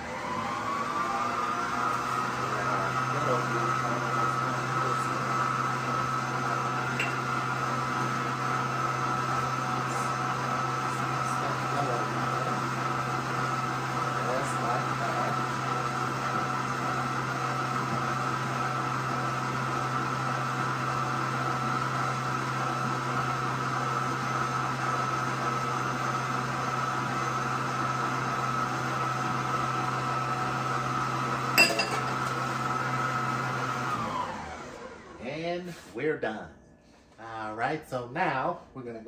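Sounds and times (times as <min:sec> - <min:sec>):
stand mixer humming: 0:00.0 - 0:35.3.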